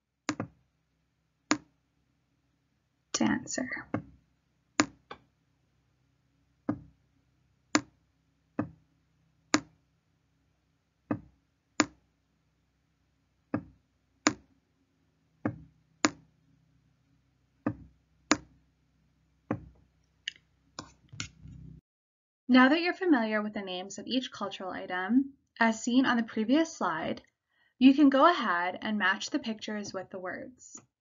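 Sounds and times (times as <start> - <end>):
sharp hard taps: 4.8 - 5.2.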